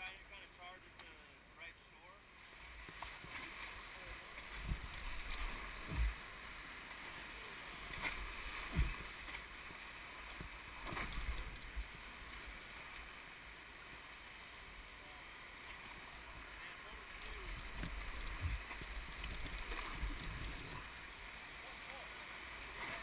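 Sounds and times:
rapids rushing and splashing: 0:02.2 - 0:23.0
dull low thumps: 0:05.8 - 0:06.2, 0:08.6 - 0:09.0, 0:17.7 - 0:18.7.

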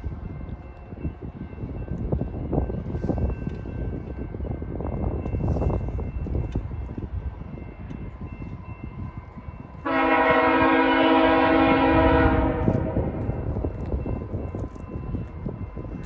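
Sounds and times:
locomotive air horn chord: 0:09.8 - 0:13.2.

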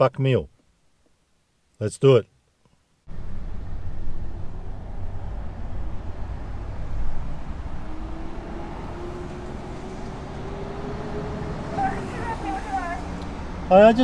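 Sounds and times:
car engine and road rumble: 0:03.0 - 0:14.0
faint rising whine: 0:03.1 - 0:14.0.

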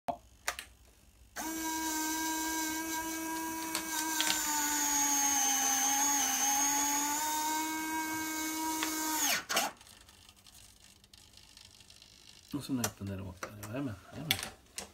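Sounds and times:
electric actuator whining: 0:01.4 - 0:09.8.

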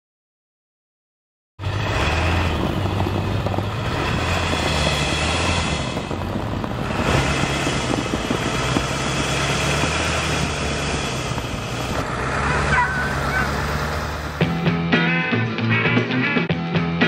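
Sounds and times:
tyre noise on snowy road: 0:01.6 - 0:14.6
car engine humming: 0:01.6 - 0:15.7.

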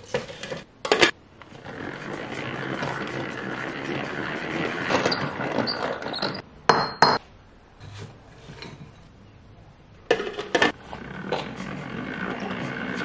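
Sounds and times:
salad spinner whirring rattle: 0:01.5 - 0:06.1.

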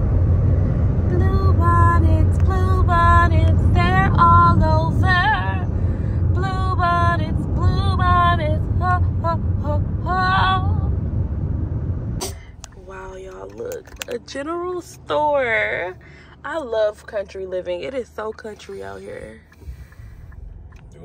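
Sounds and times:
car road noise: 0:00.0 - 0:21.0
woman singing: 0:01.1 - 0:05.7, 0:06.3 - 0:10.8.

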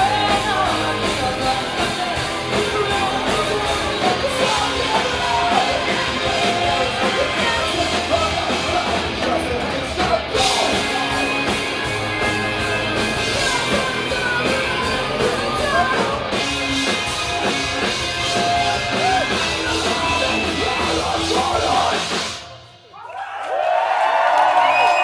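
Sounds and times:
shouted and sung vocals: 0:00.0 - 0:16.4, 0:18.2 - 0:22.2
live heavy rock band: 0:00.0 - 0:22.8.

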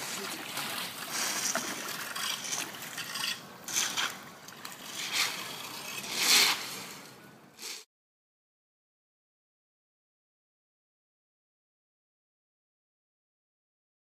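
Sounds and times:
splashing in shallow floodwater: 0:00.0 - 0:05.6
rakes scraping pavement: 0:00.0 - 0:07.9.

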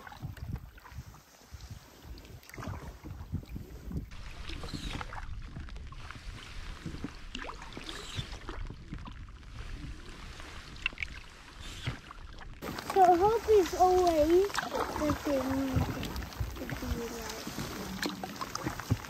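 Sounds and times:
paddle splashing water: 0:00.0 - 0:19.0.

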